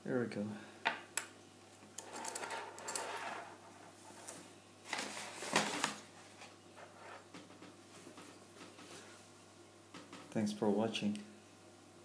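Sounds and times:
metal frame scraping on wood: 0:02.0 - 0:04.1.

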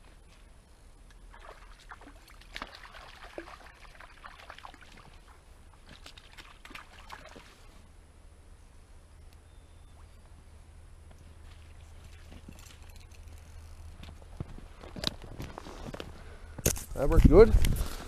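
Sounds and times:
water splashing and trickling: 0:01.2 - 0:07.8, 0:11.4 - 0:13.6.

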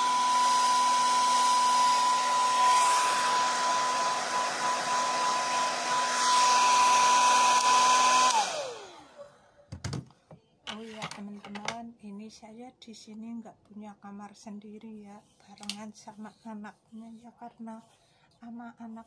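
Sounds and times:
hair dryer motor winding down: 0:00.0 - 0:09.3
hair dryer blowing: 0:00.0 - 0:09.4.

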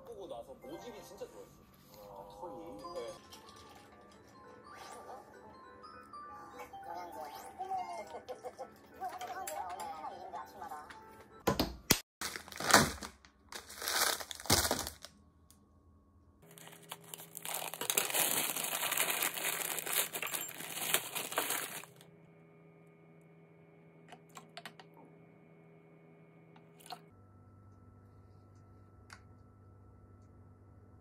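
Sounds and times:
frozen peas pouring into a bowl: 0:12.2 - 0:15.1, 0:16.5 - 0:22.0
plastic bag crinkling: 0:12.2 - 0:15.1, 0:16.4 - 0:22.0.

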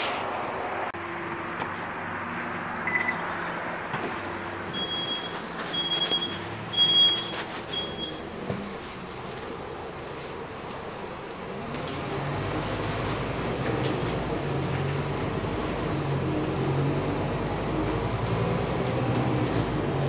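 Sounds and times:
bus engine hum: 0:00.0 - 0:20.0
electronic beeps: 0:02.8 - 0:03.2.

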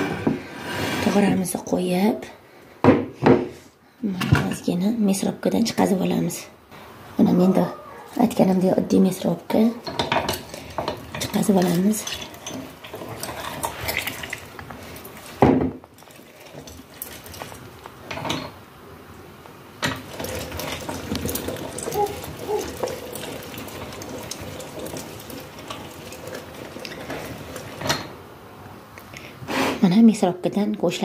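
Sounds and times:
meat grinder scraping and creaking: 0:10.4 - 0:14.3, 0:19.9 - 0:28.0.

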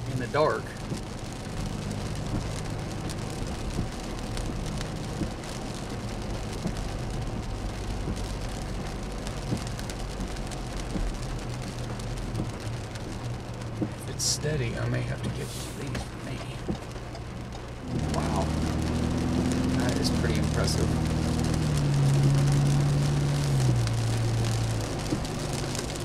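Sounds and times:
engine and road hum: 0:00.0 - 0:26.0
tyres hissing on wet pavement: 0:00.0 - 0:26.0.

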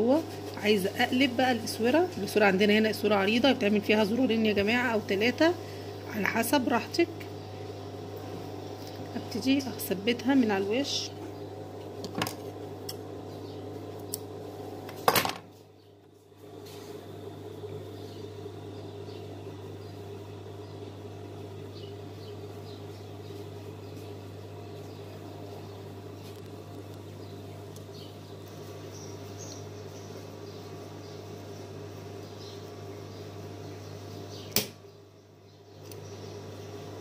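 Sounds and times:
sharp click: 0:34.5 - 0:34.8.

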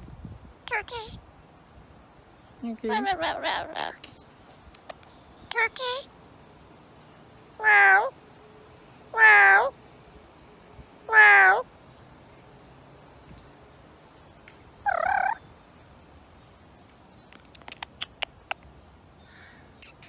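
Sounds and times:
parrot calling: 0:02.9 - 0:04.2, 0:07.6 - 0:08.2, 0:09.1 - 0:09.8, 0:11.1 - 0:11.7, 0:14.8 - 0:15.4, 0:17.3 - 0:18.6.

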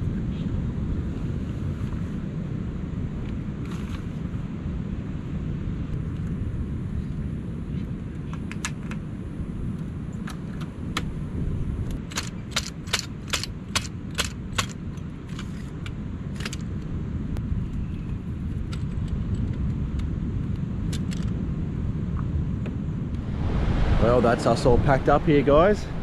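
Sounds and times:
wind rumble on microphone: 0:00.0 - 0:14.2, 0:15.1 - 0:26.0.

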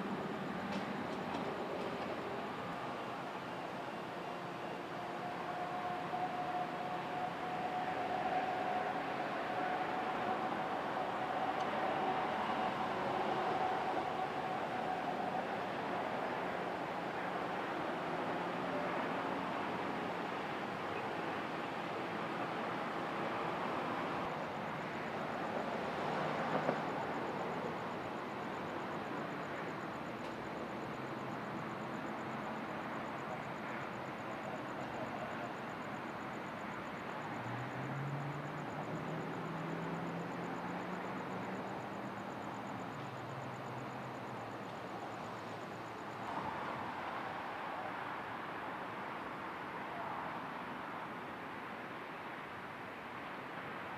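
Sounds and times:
street traffic noise: 0:00.0 - 0:53.9.

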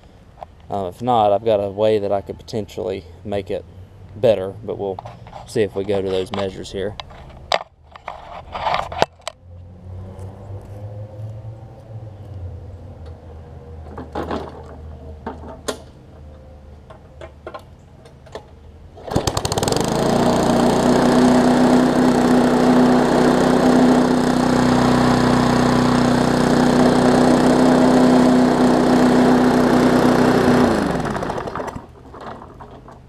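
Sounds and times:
lawn mower engine running: 0:19.0 - 0:33.0.

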